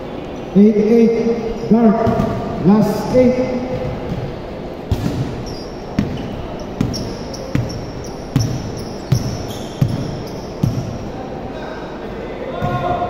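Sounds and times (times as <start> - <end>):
basketball bouncing on wooden floor: 2.0 - 2.4, 4.9 - 11.0
shoe squeaks: 5.4 - 11.1.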